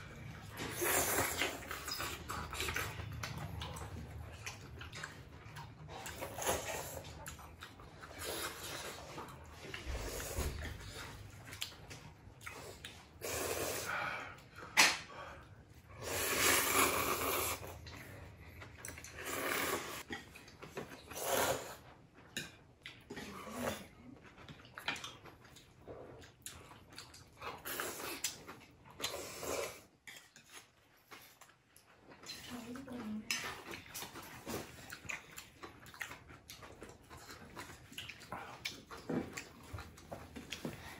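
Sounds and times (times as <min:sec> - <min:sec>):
chewing: 0:00.0 - 0:40.9
noodles being slurped: 0:00.1 - 0:05.3, 0:05.9 - 0:11.8, 0:16.0 - 0:20.2, 0:20.9 - 0:21.8.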